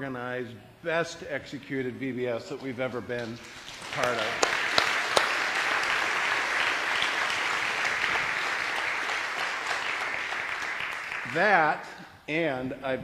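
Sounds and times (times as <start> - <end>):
crowd clapping: 2.6 - 11.8.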